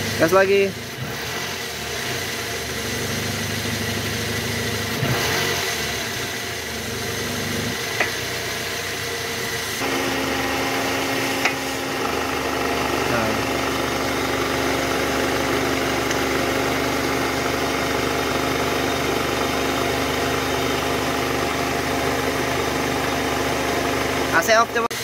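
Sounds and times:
car engine running: 0.0s - 25.0s
engine humming: 6.0s - 24.4s.

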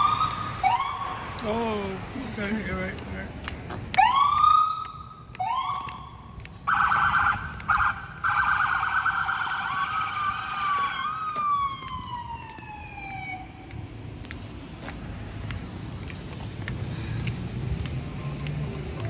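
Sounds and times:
emergency vehicle siren: 0.0s - 1.8s, 3.9s - 13.9s.

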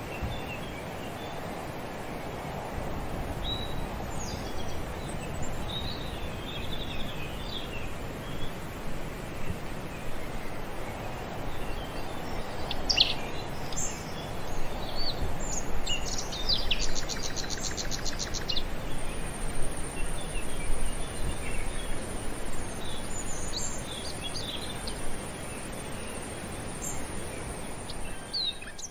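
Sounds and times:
high insect whine: 0.1s - 28.9s
bird chirps: 11.5s - 28.9s.

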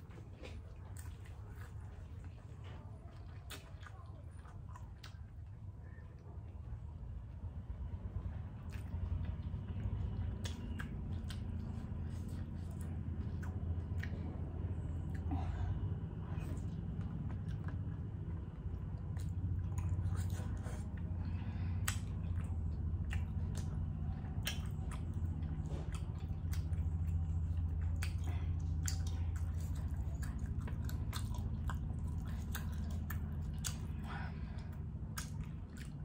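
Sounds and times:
steady low hum: 0.0s - 36.0s
person chewing: 8.2s - 36.0s.

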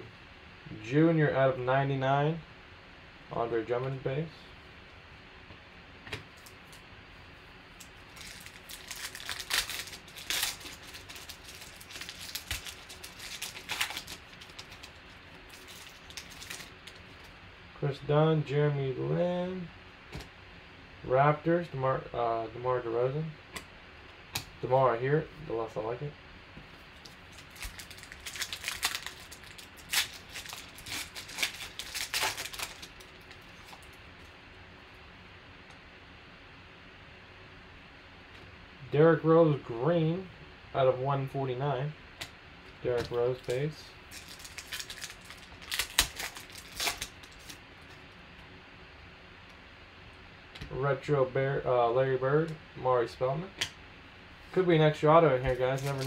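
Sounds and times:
foil wrapper crinkling: 7.8s - 17.4s, 26.9s - 34.0s, 43.0s - 48.0s, 55.4s - 56.0s.

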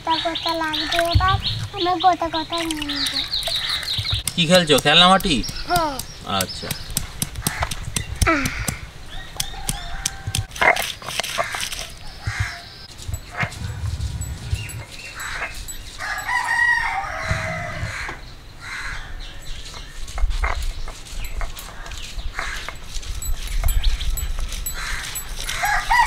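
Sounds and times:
sharp clicks: 3.0s - 8.8s
rooster crowing: 9.2s - 10.5s, 15.2s - 18.2s, 24.8s - 26.0s.

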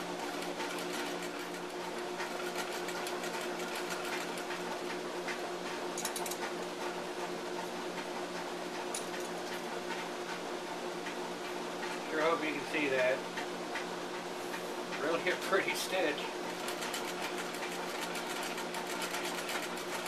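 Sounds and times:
sewing machine stitching: 0.2s - 4.5s, 16.6s - 20.0s.

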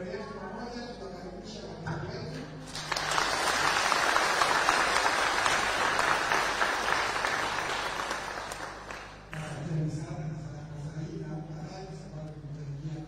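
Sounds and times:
people clapping: 2.6s - 9.6s.

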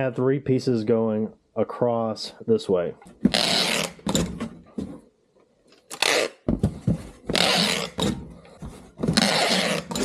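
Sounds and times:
packing tape pulled off roll: 3.3s - 4.1s, 5.8s - 6.5s, 7.3s - 8.1s, 9.1s - 10.0s.

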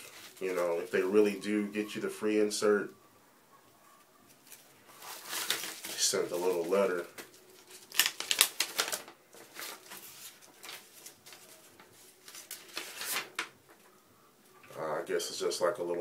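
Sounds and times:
paper rustling: 0.0s - 1.5s, 4.3s - 13.6s.

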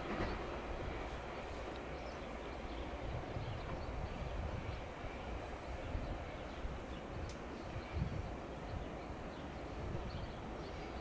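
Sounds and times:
train rumbling: 0.0s - 11.0s
faint clicks: 7.2s - 7.5s.

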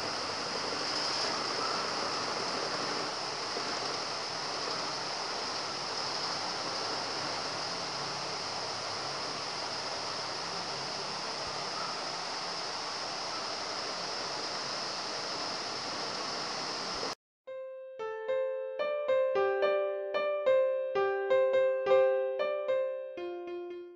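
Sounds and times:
rain falling: 0.0s - 17.2s.

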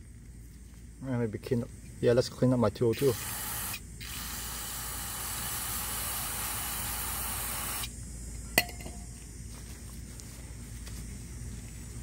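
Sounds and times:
aerosol spray hiss: 3.0s - 7.9s.

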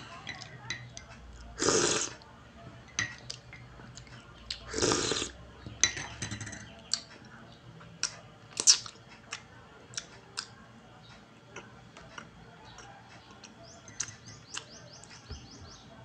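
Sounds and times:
loud slurp from a spoon: 1.6s - 2.2s, 4.7s - 5.3s.

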